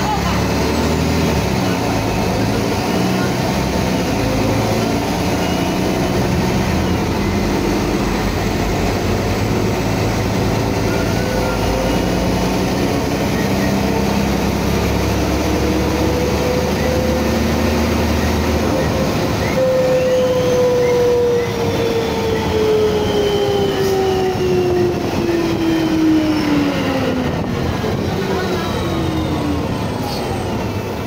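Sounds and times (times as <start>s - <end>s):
bus diesel engine under load: 0.0s - 31.0s.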